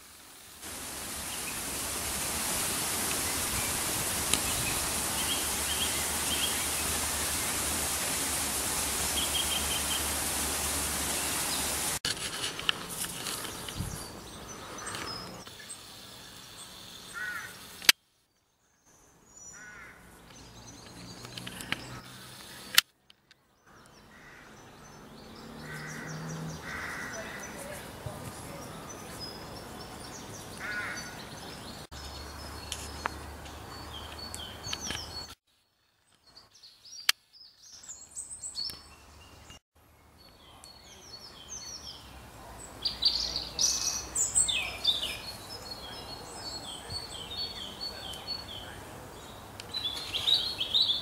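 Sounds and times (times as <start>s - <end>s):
loud steady hiss: 0.0s - 18.0s
bird calls and chirps: 3.0s - 11.9s, 36.1s - 51.0s.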